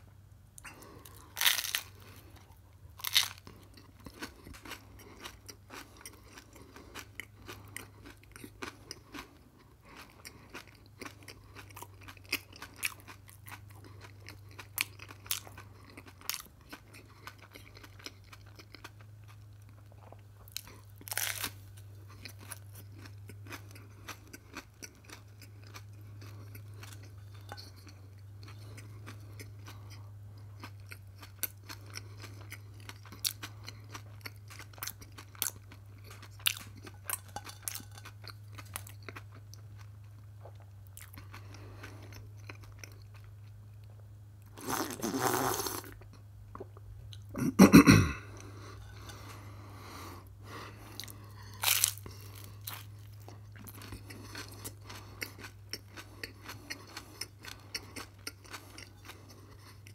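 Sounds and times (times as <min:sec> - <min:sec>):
chewing and crunching bread: 0:00.1 - 0:59.9
steady low hum: 0:45.8 - 0:59.9.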